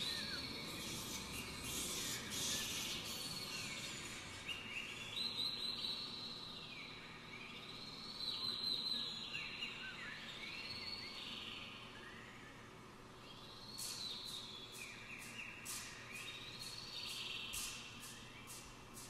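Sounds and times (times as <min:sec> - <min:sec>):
wind orchestra bird-like calls: 0:00.0 - 0:05.6.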